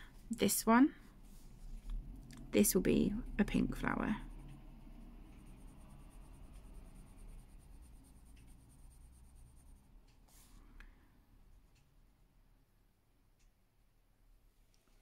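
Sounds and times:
pencil scratching on paper: 3.7 - 10.6.

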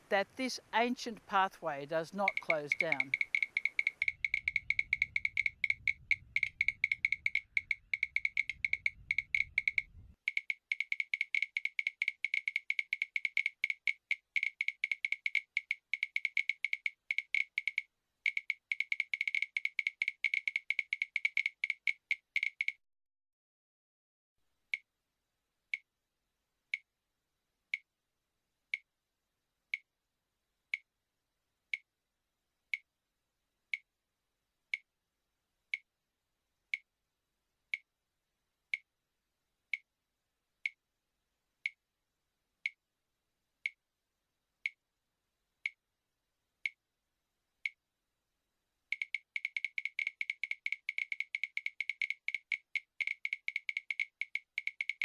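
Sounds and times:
sharp high clicks: 2.2 - 22.8, 48.9 - 55.0.

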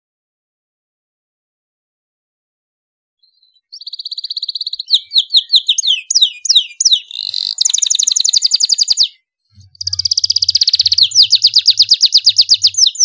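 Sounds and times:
canary singing: 3.2 - 13.0.

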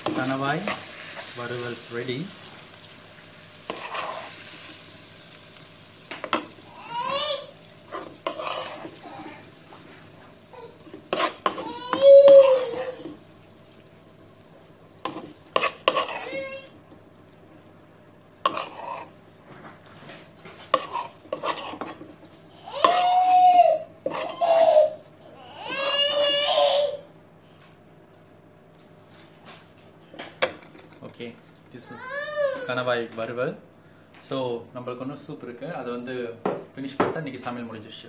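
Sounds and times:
metal spoon scraping a wok: 3.7 - 4.4, 7.9 - 9.0, 11.1 - 11.8, 15.0 - 16.4, 18.5 - 19.1, 20.7 - 22.0, 24.0 - 24.4
child crying out: 6.6 - 7.6, 9.0 - 9.5, 10.5 - 10.9, 11.5 - 13.2, 16.1 - 16.8, 22.6 - 27.1, 31.8 - 32.8.

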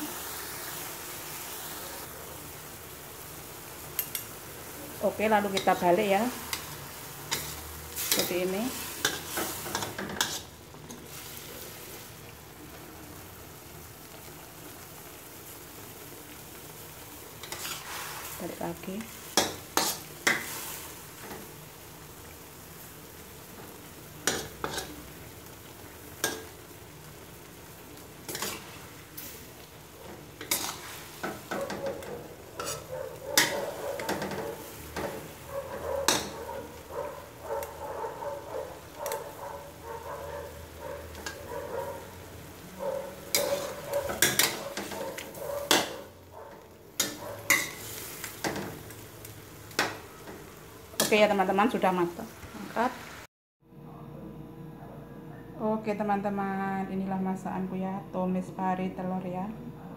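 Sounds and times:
food sizzling in a wok: 0.0 - 53.3
metal spatula scraping a pan: 5.4 - 11.5, 17.4 - 21.4, 24.2 - 25.0, 28.3 - 29.4, 30.1 - 36.7, 43.1 - 49.0.

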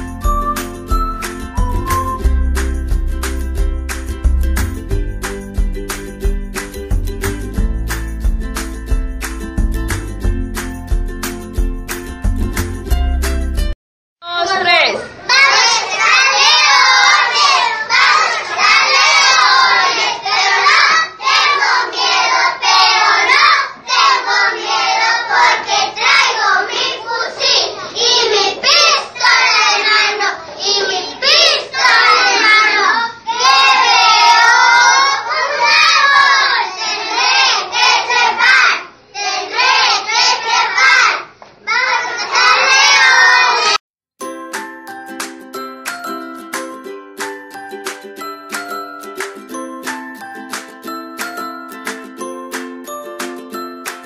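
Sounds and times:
children singing in unison: 15.3 - 43.8.

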